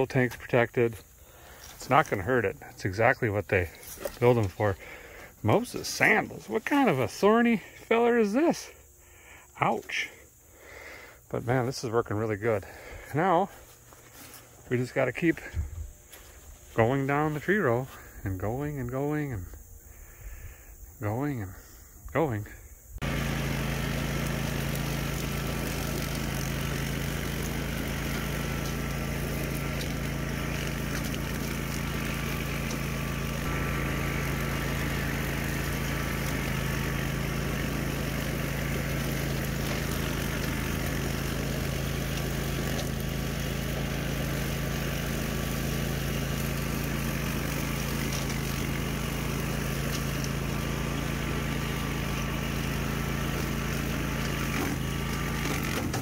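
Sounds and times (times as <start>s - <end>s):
mower engine running: 0.0s - 19.3s, 23.0s - 56.0s
mower cutting through weeds: 0.0s - 19.4s, 23.0s - 56.0s.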